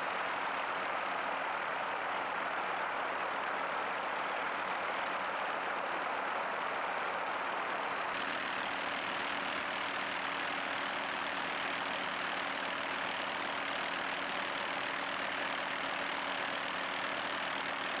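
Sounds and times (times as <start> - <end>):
helicopter engine and rotor: 8.0 - 18.0.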